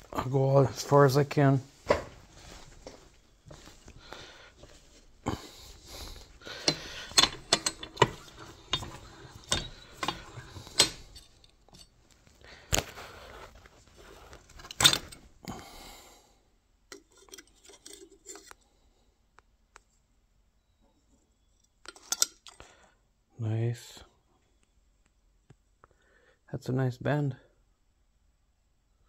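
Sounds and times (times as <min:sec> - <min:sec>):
sheet metal clicking and clinking: 0:04.6 - 0:11.9, 0:14.4 - 0:15.3.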